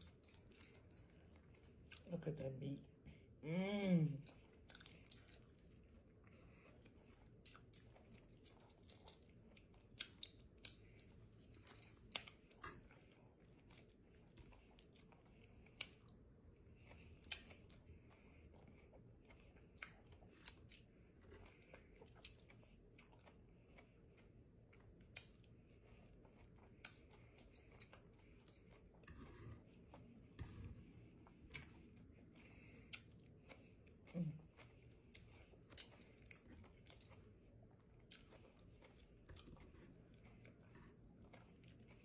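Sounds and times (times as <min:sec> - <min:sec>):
chewing with wet mouth clicks: 0:00.0 - 0:02.1, 0:04.2 - 0:42.0
low steady hum: 0:00.0 - 0:42.0.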